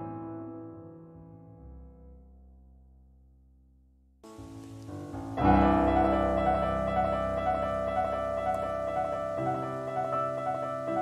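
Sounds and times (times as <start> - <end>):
solo piano playing: 4.2 - 11.0.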